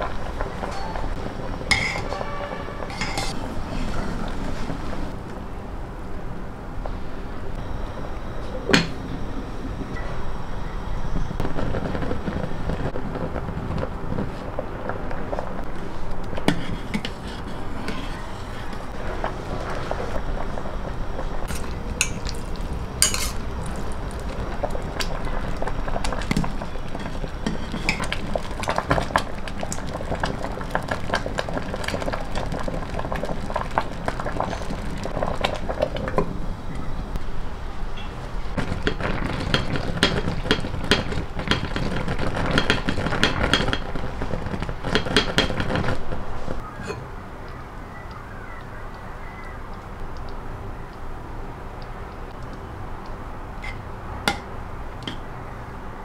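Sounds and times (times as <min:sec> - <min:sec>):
porridge bubbling: 0:00.0 - 0:56.0
metal spoon clinking on bowl: 0:02.9 - 0:03.4.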